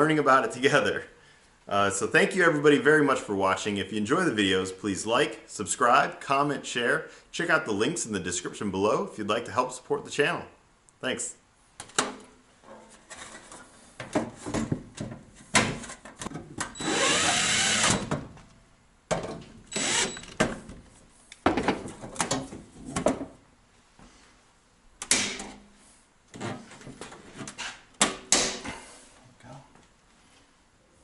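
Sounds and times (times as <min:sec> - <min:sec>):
cordless drill driving screws: 0:16.8 - 0:18.1, 0:19.7 - 0:20.4.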